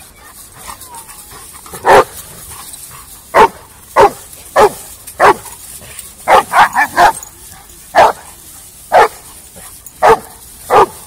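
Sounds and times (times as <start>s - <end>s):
dog barking: 1.8s - 2.1s, 3.3s - 5.4s, 6.2s - 7.2s, 8.0s - 8.3s, 8.9s - 9.3s, 10.0s - 11.0s.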